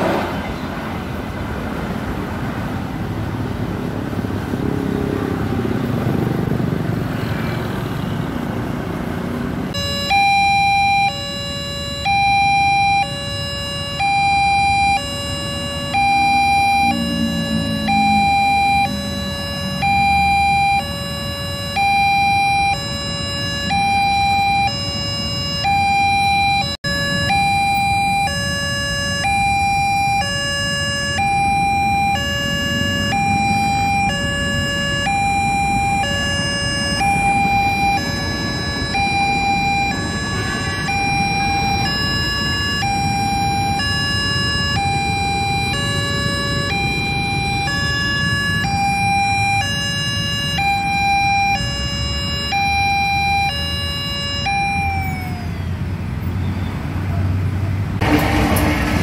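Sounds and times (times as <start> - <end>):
road traffic noise: 0.0 - 59.0
railroad crossing alarm two-note signal: 9.7 - 55.8.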